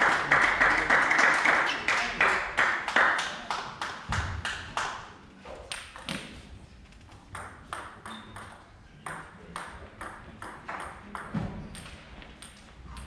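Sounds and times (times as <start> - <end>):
table tennis ball pinging: 7.3 - 13.0.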